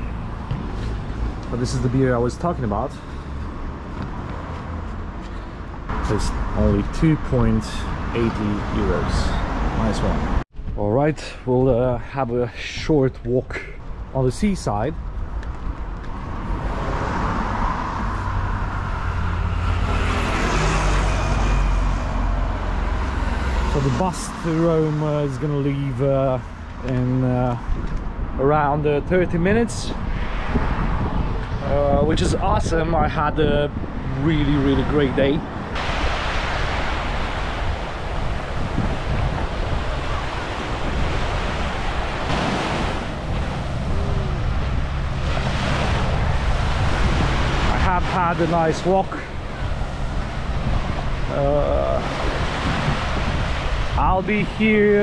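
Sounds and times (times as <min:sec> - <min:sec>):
road traffic rushing: 0:00.0 - 0:10.6, 0:13.6 - 0:28.6, 0:29.5 - 0:55.0
wind rumbling on microphone: 0:00.0 - 0:55.0
vehicle passing close: 0:16.1 - 0:25.4, 0:33.8 - 0:54.9
small waves washing on sand: 0:34.6 - 0:55.0.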